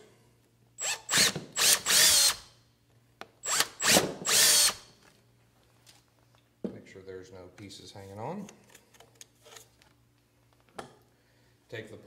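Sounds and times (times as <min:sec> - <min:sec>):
cordless drill motor bursts: 0:00.8 - 0:02.5, 0:03.4 - 0:04.9.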